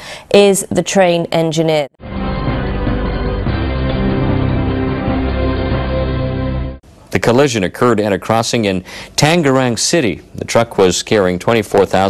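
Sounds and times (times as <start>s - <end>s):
news theme music: 2.0s - 6.8s.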